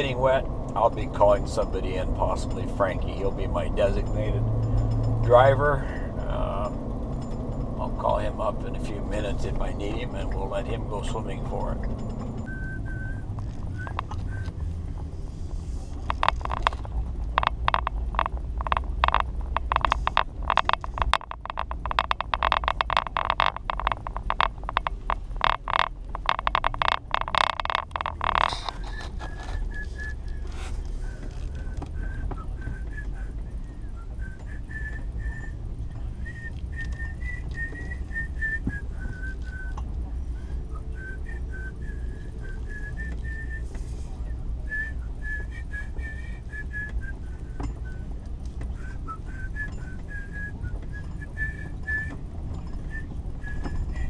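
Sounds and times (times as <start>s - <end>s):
truck engine drone: 0.0s - 54.0s
rapid crackling rattle: 6.6s - 39.7s
person whistling a tune: 12.4s - 14.7s, 28.0s - 54.0s.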